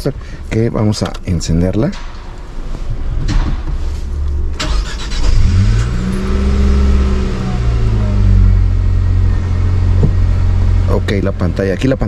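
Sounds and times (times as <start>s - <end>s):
car engine starting and revving: 3.9s - 12.0s
ignition click: 4.6s - 6.3s.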